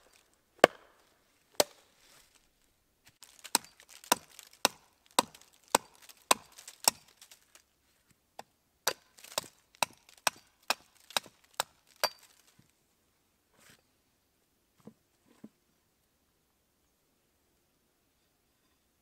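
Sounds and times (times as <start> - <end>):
axe chopping wood: 0.6 - 1.0, 1.6 - 1.8, 3.4 - 7.2, 8.9 - 12.3.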